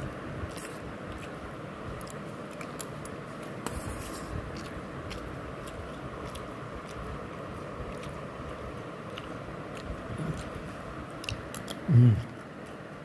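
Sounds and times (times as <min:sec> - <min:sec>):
person chewing food: 0:00.0 - 0:13.0
low voice sound: 0:11.8 - 0:12.4.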